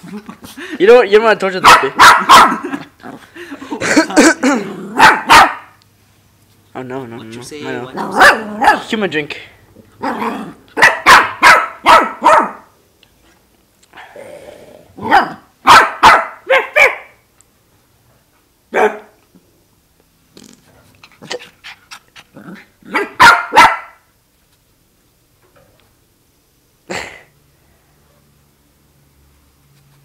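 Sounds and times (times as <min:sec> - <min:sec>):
puppy barking: 0:01.6 - 0:02.8, 0:05.0 - 0:05.8, 0:07.9 - 0:08.9, 0:10.0 - 0:12.7, 0:15.0 - 0:17.2, 0:18.7 - 0:19.2, 0:22.9 - 0:24.0.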